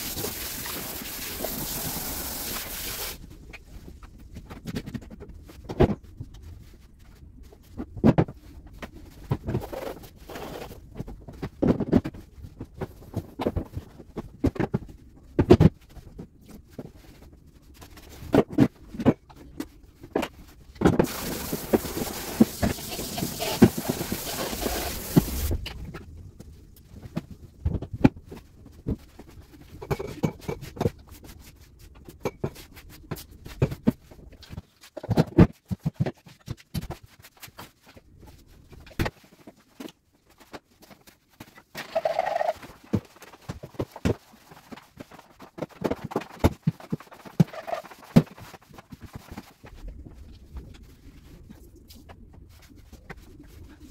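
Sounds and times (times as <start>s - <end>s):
running water hiss: 0.0s - 3.2s, 21.0s - 25.6s.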